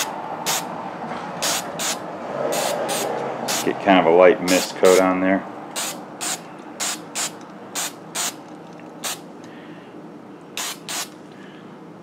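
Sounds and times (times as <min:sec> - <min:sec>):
spray paint can hissing: 0:01.4 - 0:03.7, 0:05.8 - 0:08.4, 0:10.6 - 0:11.2.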